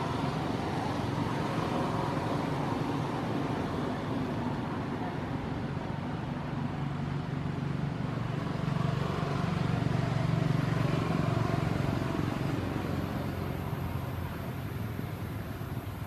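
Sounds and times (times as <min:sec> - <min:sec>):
vehicle engine passing: 0:06.2 - 0:16.0.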